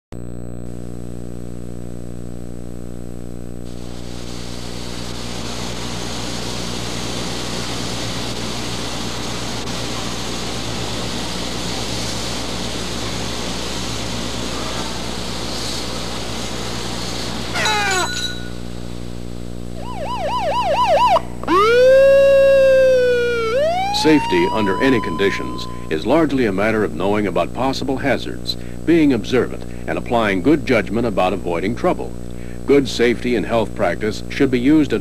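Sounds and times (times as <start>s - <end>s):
electrical hum: 0.2s - 35.0s
steady hiss: 3.6s - 35.0s
rising wail: 17.6s - 18.2s, 19.8s - 26.3s.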